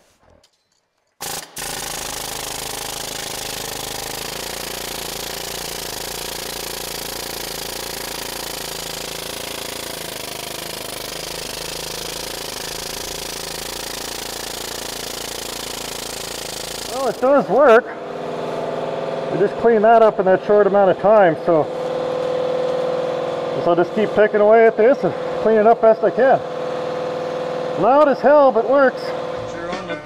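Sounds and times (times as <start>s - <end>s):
pneumatic needle scaler hammering metal: 1.2s - 17.8s.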